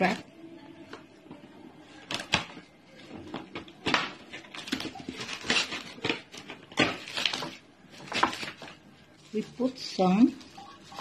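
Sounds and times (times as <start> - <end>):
cling film crinkling: 3.8 - 11.0.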